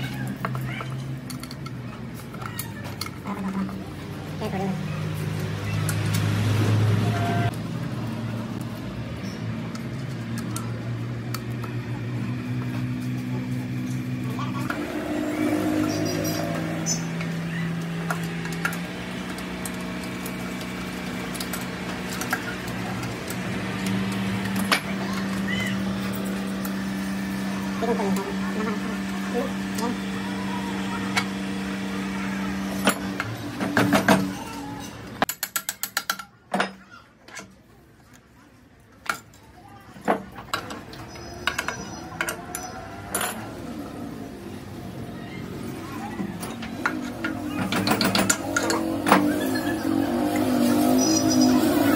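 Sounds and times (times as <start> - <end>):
sharp metal clicks and knocks: 35.2 - 37.5.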